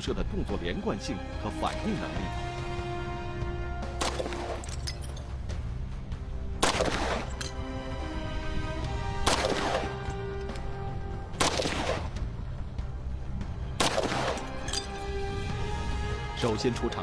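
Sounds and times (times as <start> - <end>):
background music with held tones: 0.0 - 17.0
pistol shots: 3.8 - 4.8, 6.6 - 7.5, 9.2 - 10.1, 11.3 - 12.2, 13.7 - 14.8.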